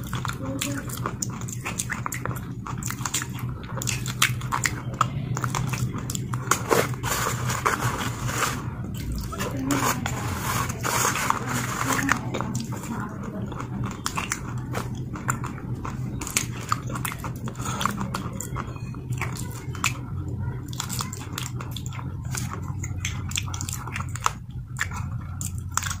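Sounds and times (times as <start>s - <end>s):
low steady hum: 0.0s - 26.0s
person chewing with wet crunches: 0.0s - 26.0s.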